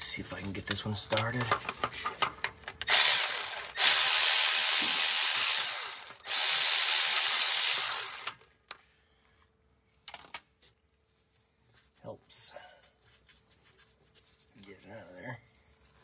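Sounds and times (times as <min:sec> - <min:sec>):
cordless ratchet spinning bolts: 0:02.8 - 0:08.4.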